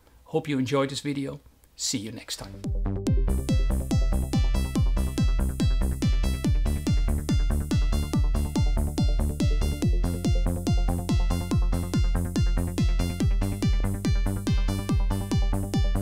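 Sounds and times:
electronic dance music: 2.5s - 16.0s
kick drum: 2.6s - 16.0s
held synth chord: 3.0s - 16.0s.

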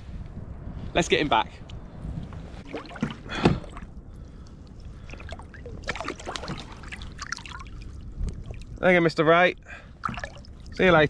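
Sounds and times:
water sloshing against kayak: 2.4s - 11.0s
small splashes: 2.6s - 8.9s, 9.7s - 10.9s.

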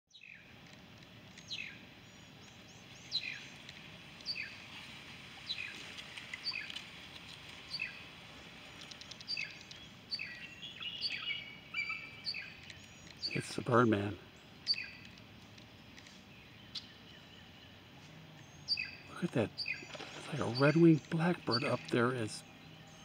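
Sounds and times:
faint outdoor hiss: 0.1s - 23.0s
bird whistled calls: 8.8s - 13.6s, 14.7s - 15.1s, 18.5s - 21.9s.

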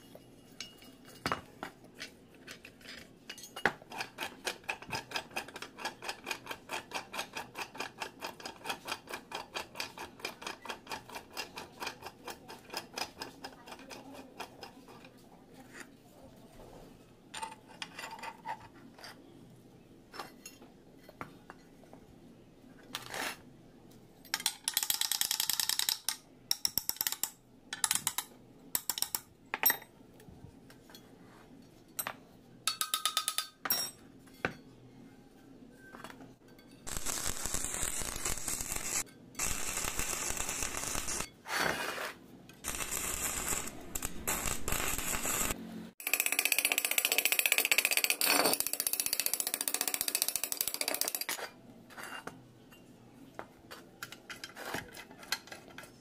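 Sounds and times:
tools tapping on metal: 0.0s - 14.7s, 24.2s - 29.9s, 31.9s - 34.7s.

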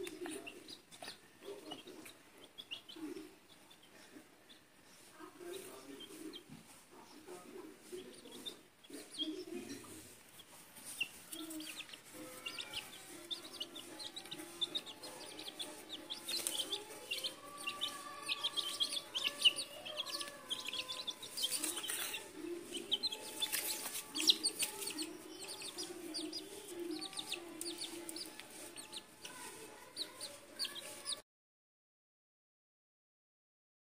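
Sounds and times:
chicks peeping: 0.0s - 31.2s
hen clucking: 5.6s - 31.2s.

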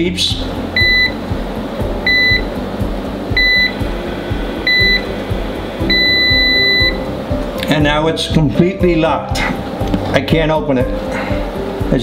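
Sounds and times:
music with steady beat: 0.0s - 12.0s
long steady beep: 0.8s - 1.2s, 2.0s - 2.5s, 3.3s - 3.8s, 4.6s - 5.1s, 5.8s - 7.2s.

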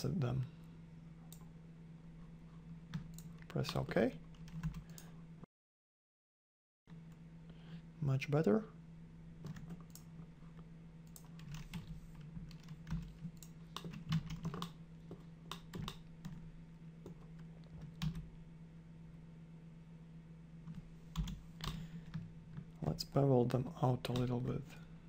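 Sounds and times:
low steady hum: 0.0s - 5.5s, 6.9s - 25.0s
keyboard and mouse clicks: 11.1s - 16.4s.

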